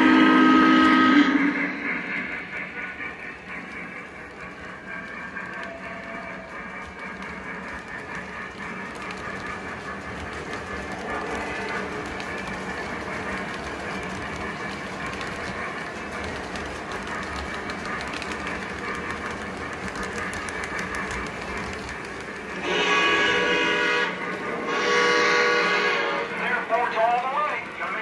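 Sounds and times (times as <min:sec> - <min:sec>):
multi-tone steam whistle: 0:00.0 - 0:02.4, 0:22.6 - 0:26.4
model train cars rolling on track: 0:00.0 - 0:28.0
light clicking of track: 0:02.3 - 0:22.6.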